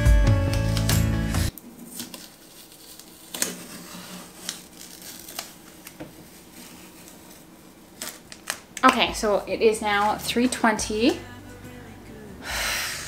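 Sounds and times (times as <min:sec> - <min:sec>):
contact paper rustling: 0:00.5 - 0:11.2
sharp crinkles and clicks: 0:00.7 - 0:09.1.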